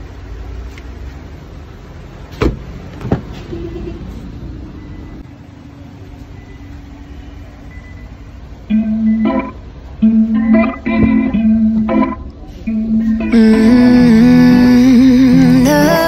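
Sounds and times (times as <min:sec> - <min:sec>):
faint steady hum: 0:04.7 - 0:16.0.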